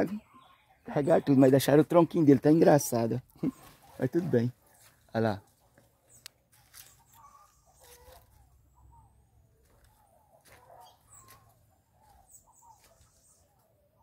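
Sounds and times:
chicken clucking: 0:03.3 - 0:05.7, 0:06.7 - 0:13.6.

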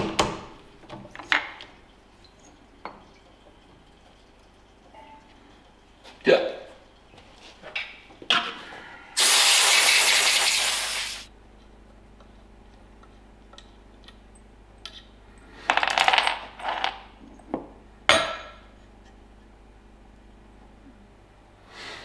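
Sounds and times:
loud hiss: 0:09.2 - 0:11.3.

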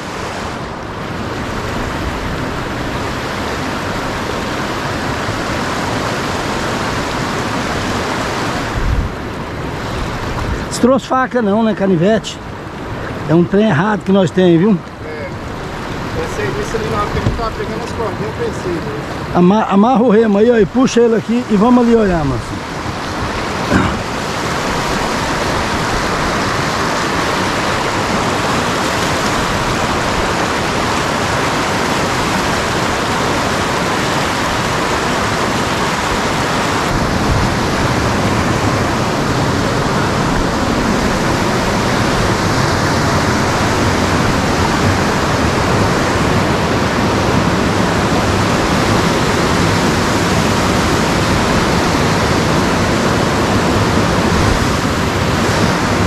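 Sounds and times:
whitewater rapids rushing: 0:00.0 - 0:56.0.

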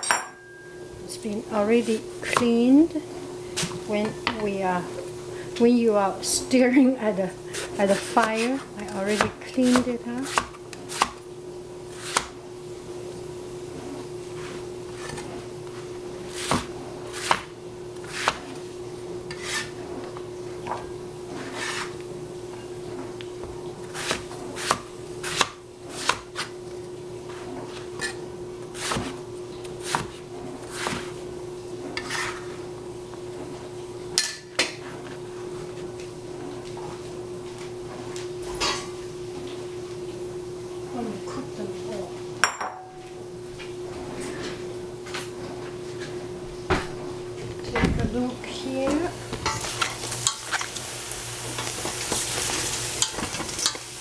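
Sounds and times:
knife chopping on plastic board: 0:08.2 - 0:11.2, 0:12.0 - 0:12.3, 0:16.4 - 0:18.5, 0:24.0 - 0:26.5, 0:29.8 - 0:31.1.

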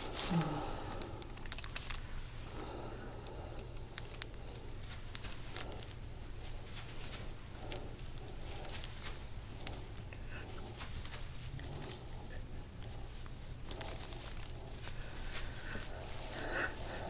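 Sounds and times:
hands rustling on skin and clothing: 0:00.0 - 0:17.0
steady low hum: 0:00.0 - 0:17.0.

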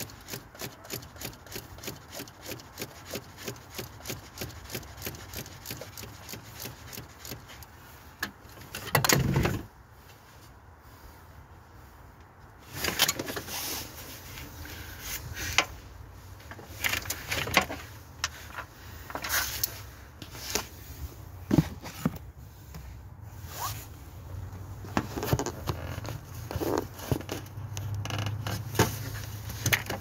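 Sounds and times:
tools clicking and scraping: 0:00.0 - 0:09.4, 0:16.4 - 0:20.8.

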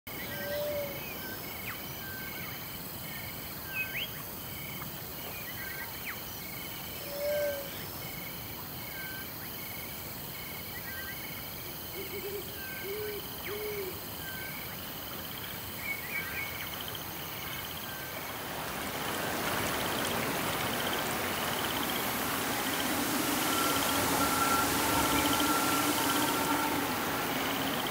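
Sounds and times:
steady hiss: 0:11.4 - 0:27.9
low hooting calls: 0:19.2 - 0:27.9.

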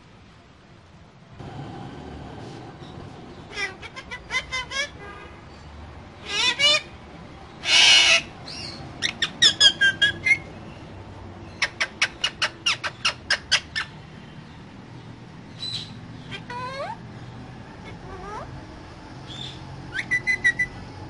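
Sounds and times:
parakeet squawking: 0:03.3 - 0:05.2, 0:06.2 - 0:06.9, 0:07.6 - 0:10.5, 0:11.5 - 0:14.0, 0:15.6 - 0:17.0, 0:19.3 - 0:20.8
parakeet chirping: 0:07.6 - 0:10.5, 0:11.4 - 0:17.0, 0:19.2 - 0:20.8.

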